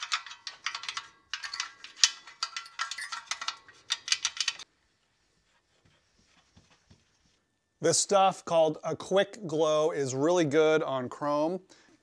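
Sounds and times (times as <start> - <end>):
metal parts clinking and rattling: 0.0 - 4.6.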